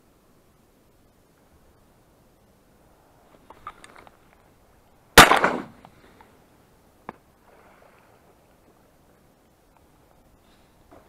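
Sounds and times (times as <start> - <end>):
shotgun shot: 5.2 - 5.8.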